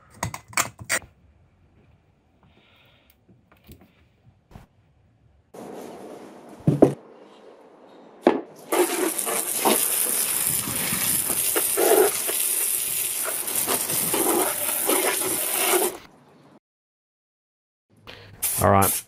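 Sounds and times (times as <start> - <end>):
board set down with a knock: 6.6 - 7.0
water jet spraying and splashing: 8.6 - 16.0.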